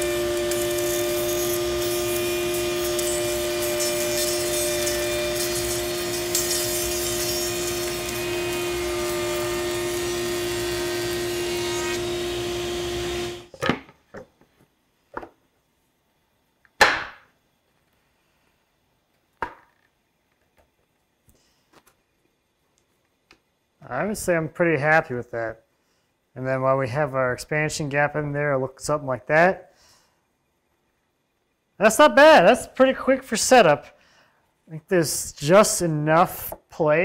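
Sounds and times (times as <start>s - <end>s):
router running: 0.0s - 13.5s.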